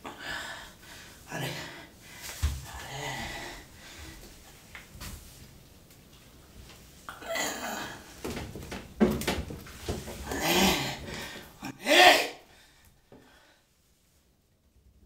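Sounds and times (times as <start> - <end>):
man grunting and exhaling: 10.2 - 12.5
man shouting: 11.6 - 12.5.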